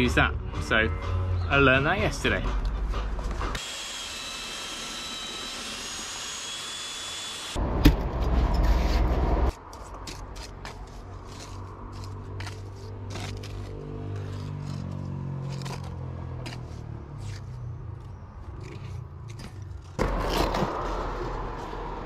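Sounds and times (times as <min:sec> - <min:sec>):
drill mixer whining and churning: 0:03.5 - 0:07.6
trowel scraping mortar: 0:08.2 - 0:21.4.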